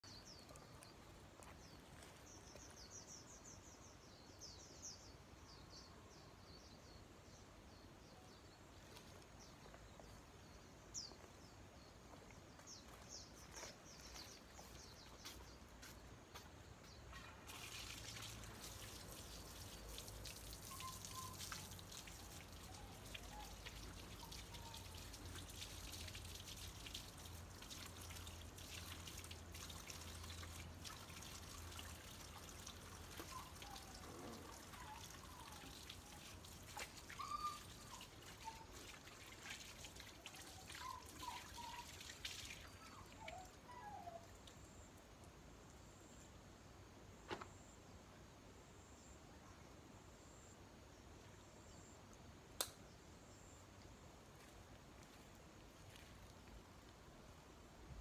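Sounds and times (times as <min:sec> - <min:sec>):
tap water trickling and splashing: 0:12.1 - 0:44.6, 0:53.8 - 0:57.0
faint bird chirps: 0:20.6 - 0:25.2, 0:33.2 - 0:38.9.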